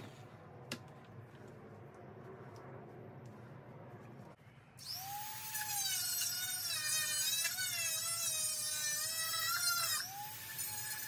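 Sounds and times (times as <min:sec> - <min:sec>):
rotary tool whining while grinding: 0:04.8 - 0:11.0.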